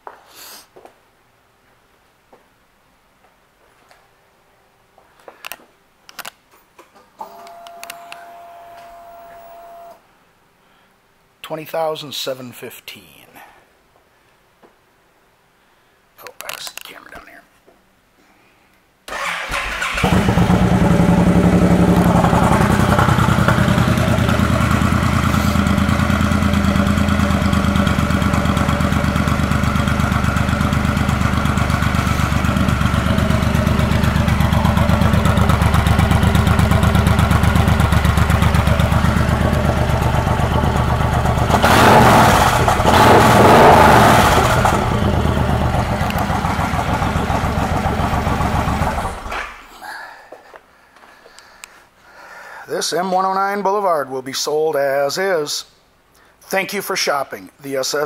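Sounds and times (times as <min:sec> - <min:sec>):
motorcycle engine idling: 0:20.1 - 0:41.6, 0:44.3 - 0:49.3.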